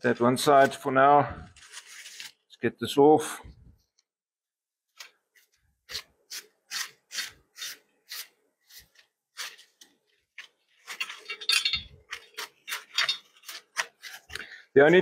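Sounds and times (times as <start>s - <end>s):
plastic wrapping rustling: 0.1s - 2.6s.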